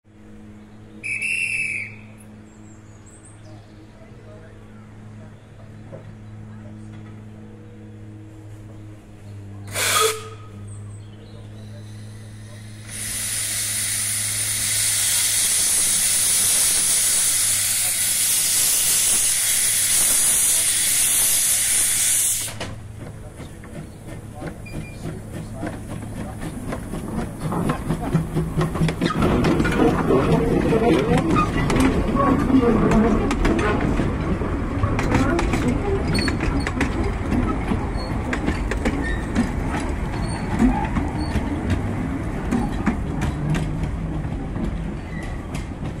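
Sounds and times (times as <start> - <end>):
train wheels rumbling on track: 0.1 - 46.0
steam locomotive hissing: 9.7 - 10.6, 11.6 - 45.9
wheels clicking over rail joints: 22.4 - 46.0.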